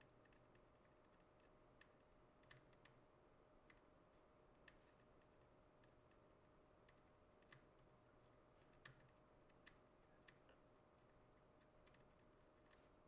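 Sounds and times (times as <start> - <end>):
faint clicks: 6.8 - 7.9.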